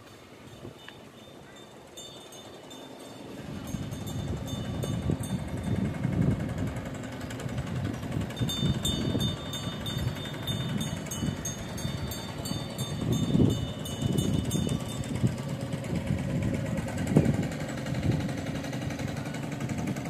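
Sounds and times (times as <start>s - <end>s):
wind buffeting microphone: 3.3s - 20.0s.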